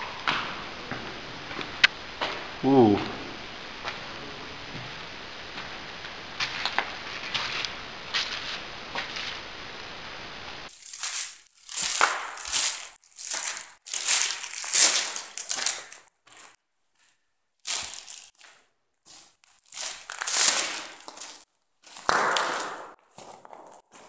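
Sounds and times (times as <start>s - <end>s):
loud crunching and crumpling: 10.7s - 16.6s, 17.6s - 24.0s.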